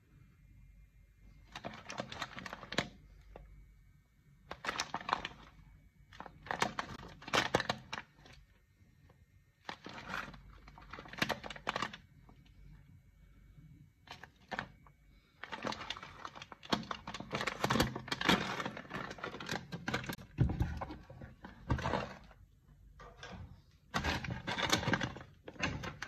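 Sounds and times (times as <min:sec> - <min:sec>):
coffee bean packet crinkling: 0:01.5 - 0:03.0, 0:04.5 - 0:05.5, 0:06.1 - 0:08.4, 0:09.6 - 0:12.1, 0:14.1 - 0:20.3.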